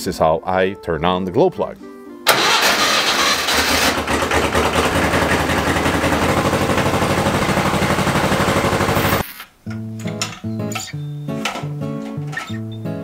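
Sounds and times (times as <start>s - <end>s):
tractor diesel engine running: 2.3s - 9.2s.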